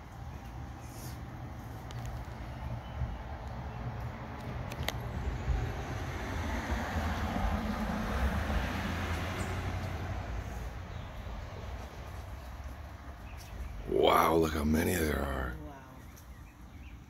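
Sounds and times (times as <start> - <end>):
pickup truck driving past: 5.0 - 12.2.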